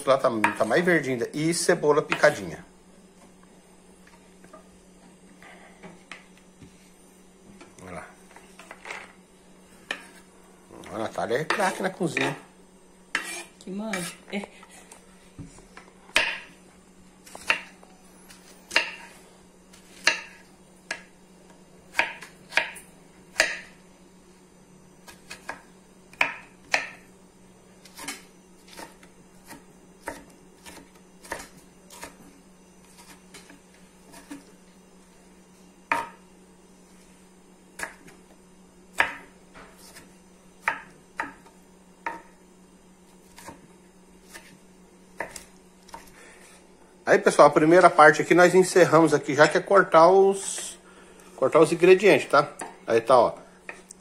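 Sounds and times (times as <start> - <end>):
knife chopping on wooden board: 13.1 - 14.2, 16.1 - 16.5, 17.2 - 17.8, 18.7 - 19.1, 19.9 - 21.1, 21.9 - 23.7, 25.0 - 27.0, 27.8 - 32.2, 35.9 - 36.2, 37.8 - 38.2, 38.9 - 42.4, 43.2 - 43.6, 44.2 - 44.6, 45.2 - 46.1.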